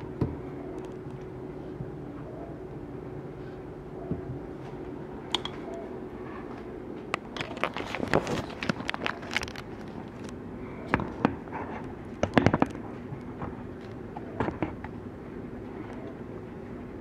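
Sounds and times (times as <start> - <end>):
steady low hum: 0.0 - 17.0
clicks and knocks of objects handled: 5.3 - 5.7, 7.1 - 15.0.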